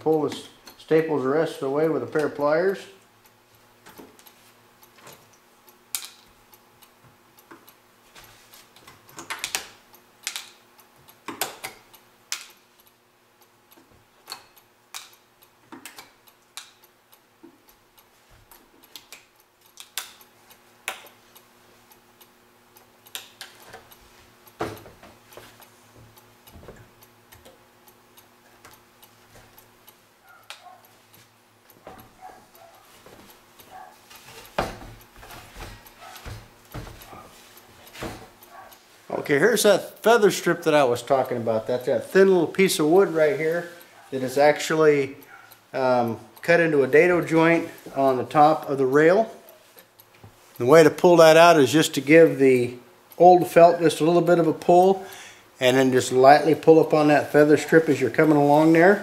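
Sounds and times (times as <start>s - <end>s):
sharp metallic clicks and snaps: 0.0s - 7.8s, 8.5s - 37.2s.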